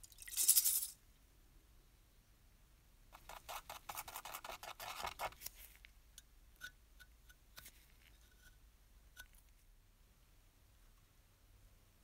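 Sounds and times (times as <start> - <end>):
spatula scraping putty: 3.2 - 5.8.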